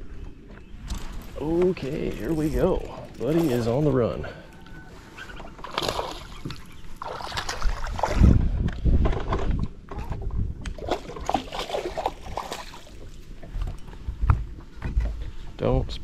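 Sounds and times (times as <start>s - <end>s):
fish splashing in water: 5.6s - 8.2s, 10.8s - 13.1s.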